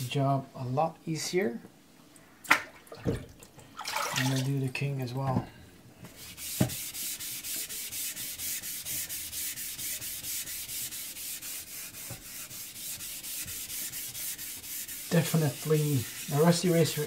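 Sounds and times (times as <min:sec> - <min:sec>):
eraser scrubbing on wet whetstone: 0:06.2 - 0:17.0.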